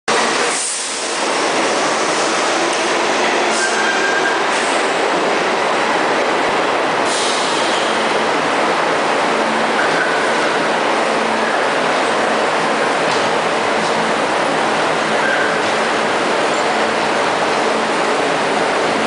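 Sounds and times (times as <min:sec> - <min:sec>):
subway train rumbling: 0:00.1 - 0:19.0.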